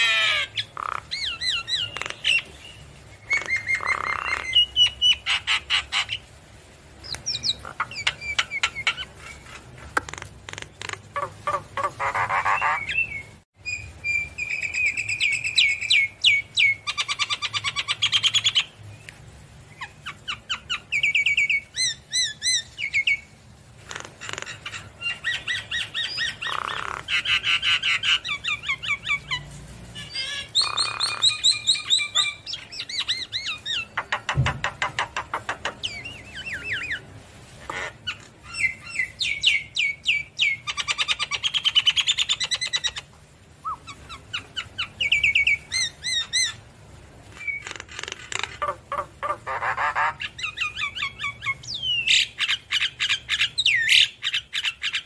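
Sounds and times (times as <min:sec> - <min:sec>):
bird singing whistles and trills: 0:12.4 - 0:18.7, 0:43.6 - 0:46.6.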